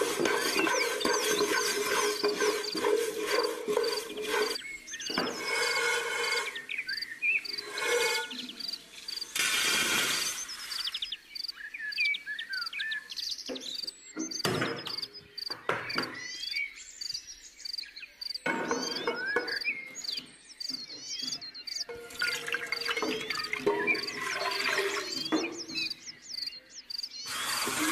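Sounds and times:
birds chirping: 0.0 - 27.9
pot clattering on stove: 21.9 - 25.6.

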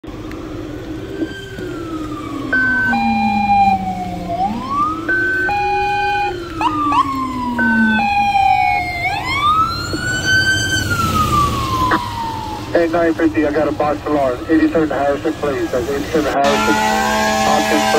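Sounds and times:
wailing siren: 0.4 - 17.9
two-note high-low siren: 1.0 - 9.7, 16.3 - 17.9
quick rising siren chirps: 1.0 - 12.7.

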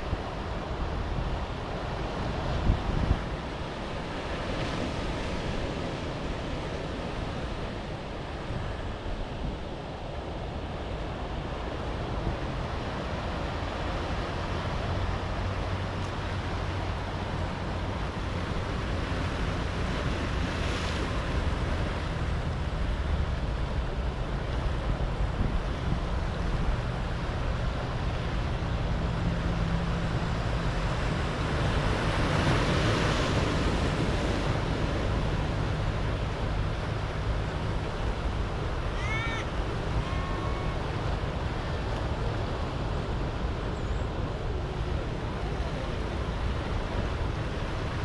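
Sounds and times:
wind rumbling on microphone: 0.0 - 48.0
waves breaking on rocks: 12.6 - 48.0.

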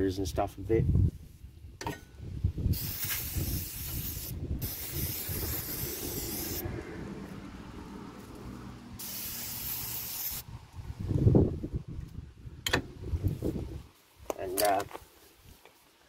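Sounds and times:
aerosol spray hissing: 2.8 - 6.6, 9.0 - 10.4.

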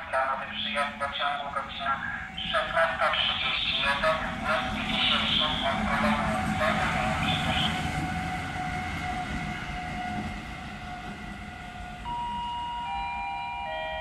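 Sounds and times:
train wheels rumbling on rails: 0.2 - 13.0
two-note announcement chime: 12.0 - 14.0.

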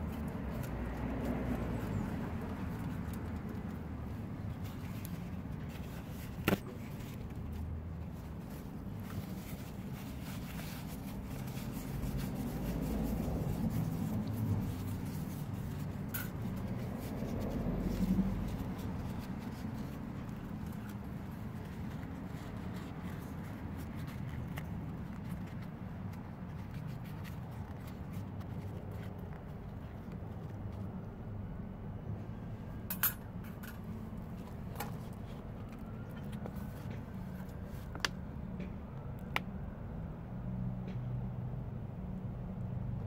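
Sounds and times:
paper towel rustling: 0.0 - 30.0.

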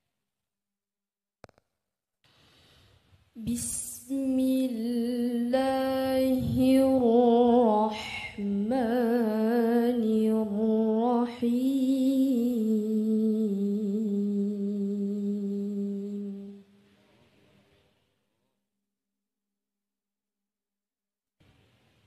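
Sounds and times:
woman reciting melodically: 3.4 - 16.6.

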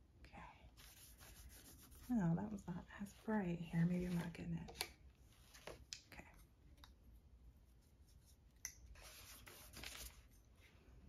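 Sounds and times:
soft rub: 0.7 - 4.4, 7.4 - 10.9.

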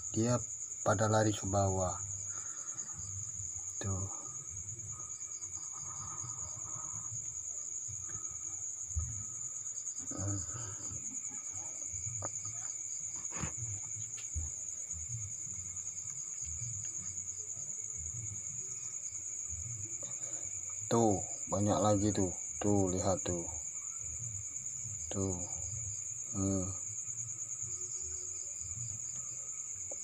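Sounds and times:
crickets chirping: 0.0 - 30.0
short knocks and rustles: 12.2 - 14.5.

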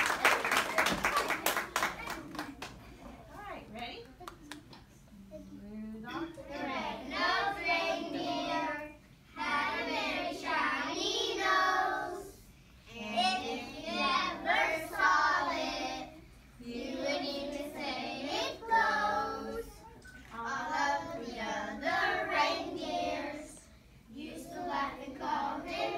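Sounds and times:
children singing in unison: 16.8 - 23.6, 24.2 - 25.9.

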